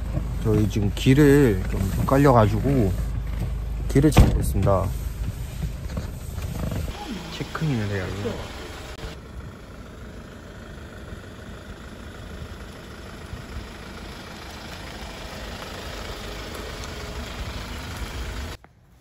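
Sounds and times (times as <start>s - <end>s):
van driving past: 6.9s - 18.6s.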